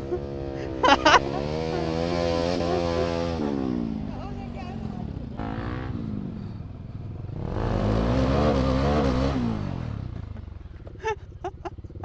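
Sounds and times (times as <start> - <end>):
motorcycle engine accelerating: 0.0 - 12.0.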